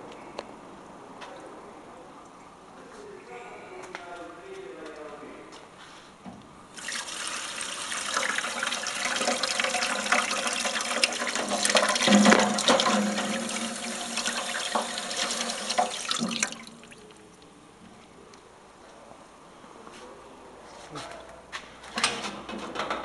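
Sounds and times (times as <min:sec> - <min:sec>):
water running into steel tank: 0:06.8 - 0:17.4.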